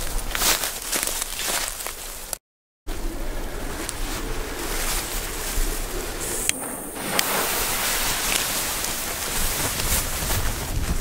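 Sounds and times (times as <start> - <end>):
grass rustling: 0.0 - 11.0
wind on microphone: 2.9 - 11.0.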